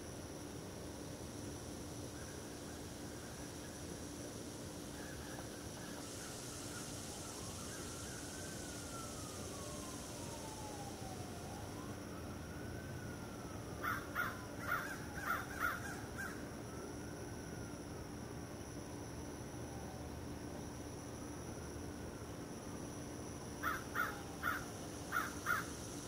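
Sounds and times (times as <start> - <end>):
faint emergency siren wailing: 5.2 - 18.5, 19.1 - 21.2
crow cawing: 13.8 - 16.3, 23.6 - 25.7.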